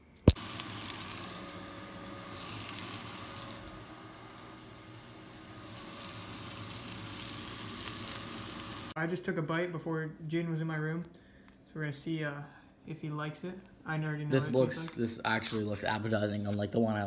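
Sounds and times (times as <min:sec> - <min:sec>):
fish sizzling in a frying pan: 0:00.3 - 0:09.0.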